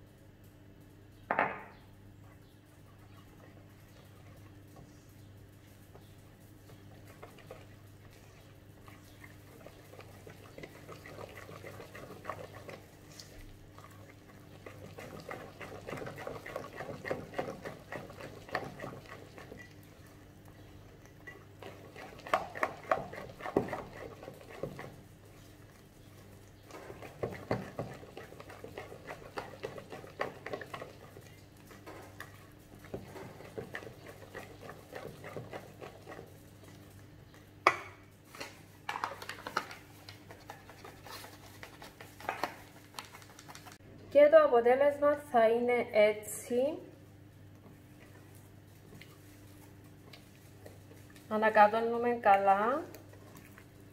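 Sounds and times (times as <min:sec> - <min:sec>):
whisk scraping metal bowl: 0:06.9 - 0:19.8, 0:21.2 - 0:36.5.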